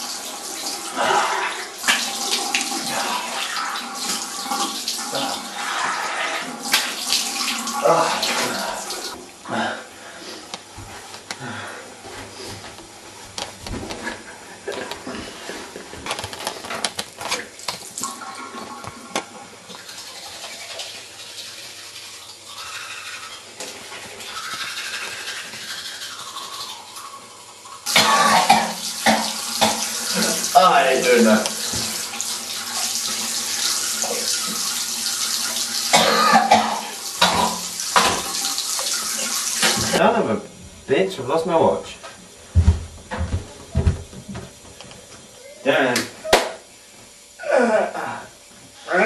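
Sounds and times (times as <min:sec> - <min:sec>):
tap water running into sink: 0:00.0 - 0:09.4, 0:16.2 - 0:27.2, 0:27.8 - 0:40.0.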